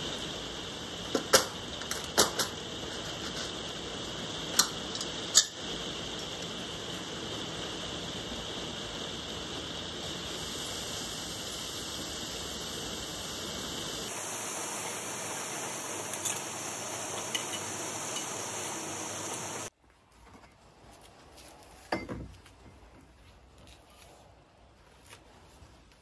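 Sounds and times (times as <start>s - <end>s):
hot metal hissing on ice: 0.0s - 19.7s.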